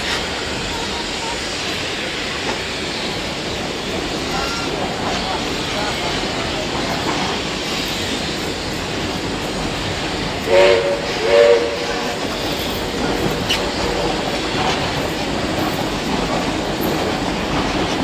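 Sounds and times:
train rolling: 0:00.0 - 0:18.0
train horn blasts: 0:10.5 - 0:12.4.

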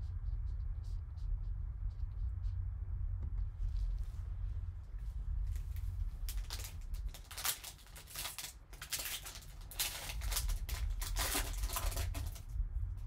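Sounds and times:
low steady hum: 0:00.0 - 0:13.0
plastic rustling and scraping: 0:04.9 - 0:12.6.

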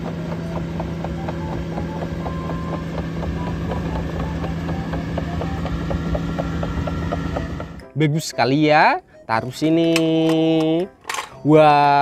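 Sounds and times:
diesel engine humming: 0:00.0 - 0:07.9.

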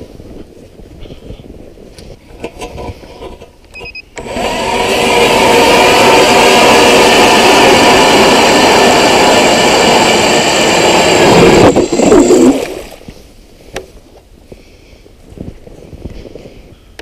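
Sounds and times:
ice auger motor whining: 0:04.2 - 0:13.0.

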